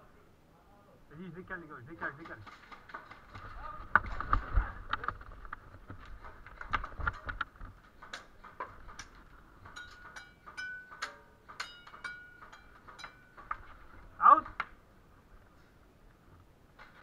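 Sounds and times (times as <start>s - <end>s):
sharp clicks and ticks: 4.9s - 13.7s.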